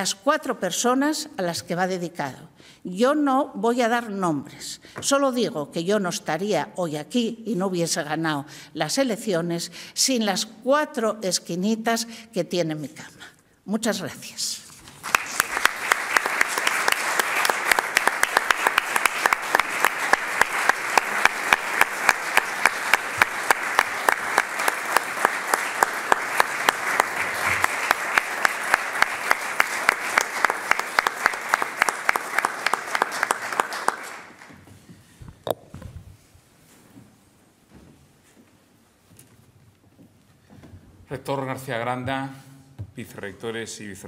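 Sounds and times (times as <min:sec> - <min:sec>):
audience applauding: 0:14.9 - 0:34.6.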